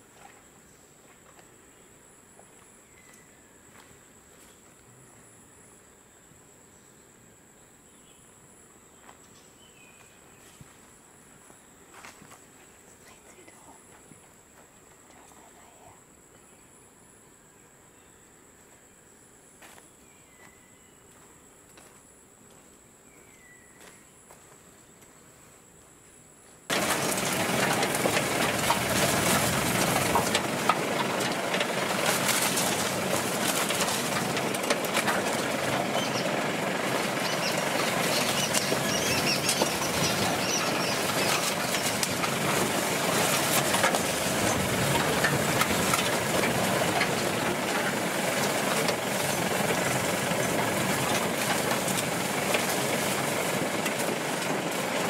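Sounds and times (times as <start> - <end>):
bird chirp: 2.8 - 3.7, 19.9 - 21.2, 23.0 - 24.2, 35.7 - 42.0
vehicle engine running: 26.7 - 55.0
vehicle rattling over ruts: 26.7 - 55.0.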